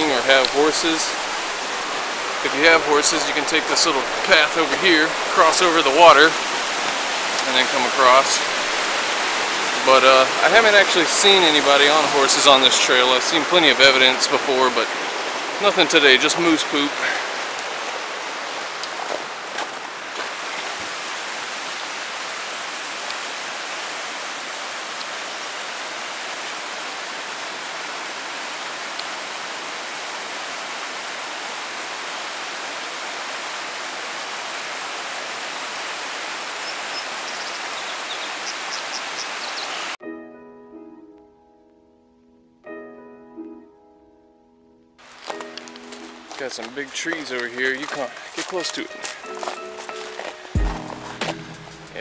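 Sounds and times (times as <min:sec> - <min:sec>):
creek rushing over rocks: 0:00.0 - 0:40.0, 0:45.0 - 0:52.0
soft background music: 0:40.0 - 0:47.3, 0:48.0 - 0:52.0.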